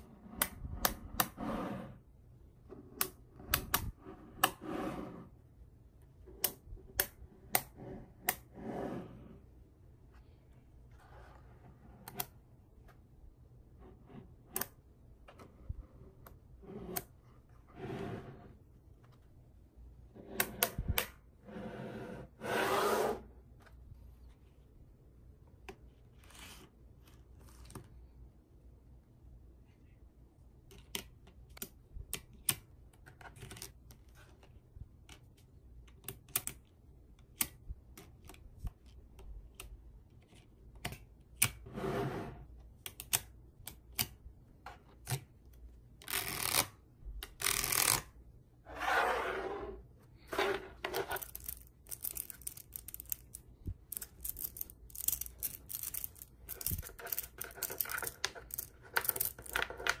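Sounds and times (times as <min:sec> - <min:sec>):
plastic card scraping: 0:46.0 - 0:48.1, 0:50.2 - 1:00.0
magnetic balls clicking: 0:51.2 - 1:00.0.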